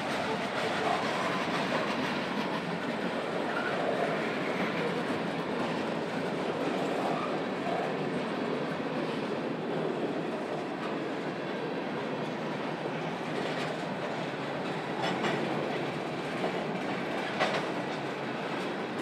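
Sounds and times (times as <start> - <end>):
freight cars rolling on rails: 0.0 - 19.0
wheels clicking over rail joints: 13.4 - 19.0.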